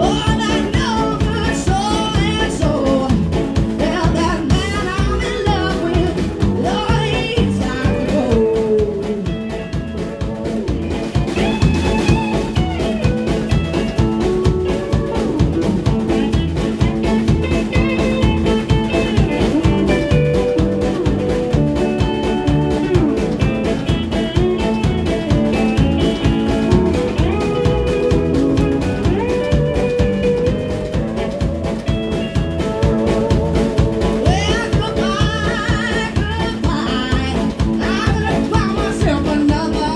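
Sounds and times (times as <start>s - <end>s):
woman singing: 0.0s - 9.8s, 34.1s - 39.9s
drum kit beat: 0.0s - 39.9s
electric guitar: 0.0s - 39.9s.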